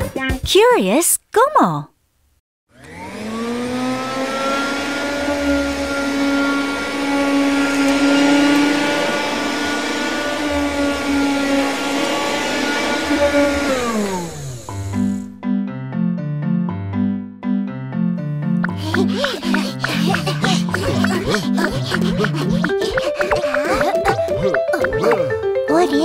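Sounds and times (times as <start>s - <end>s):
vacuum cleaner motor whining: 2.7s - 15.3s, 18.7s - 25.0s.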